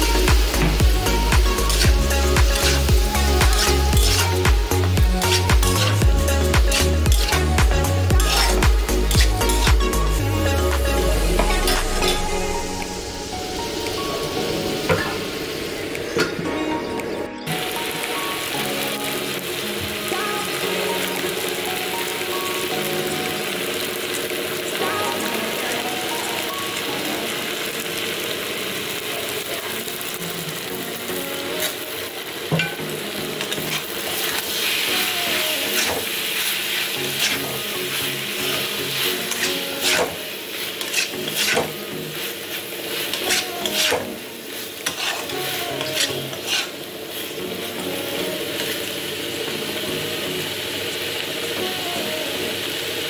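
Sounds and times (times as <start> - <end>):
vegetables sizzling in a pan: 0.0 - 16.8, 17.4 - 53.0
spoon scraping a pan: 8.1 - 9.7, 32.5 - 34.4, 35.7 - 36.2, 37.1 - 41.8, 43.0 - 44.1, 44.8 - 46.8.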